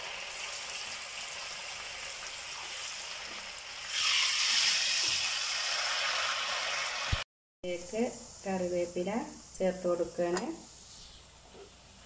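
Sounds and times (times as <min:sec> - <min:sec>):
cauliflower deep-frying in oil: 0:00.0 - 0:07.2.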